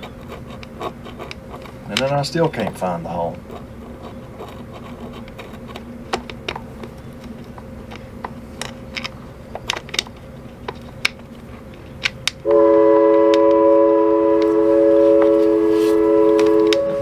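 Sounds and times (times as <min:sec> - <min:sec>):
loud steady horn chord: 0:12.4 - 0:17.0.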